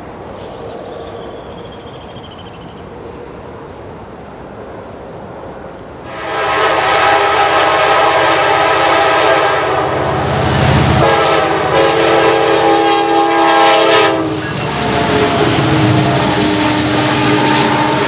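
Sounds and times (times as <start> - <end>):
locomotive air horn blasts: 6.1 - 10.3, 10.9 - 18.0.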